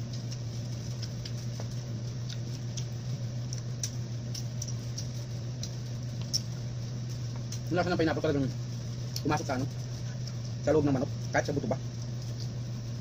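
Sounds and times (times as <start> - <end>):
chewing clicks: 0.0 - 7.7, 9.0 - 9.4, 12.0 - 12.6
steady low hum: 0.0 - 13.0.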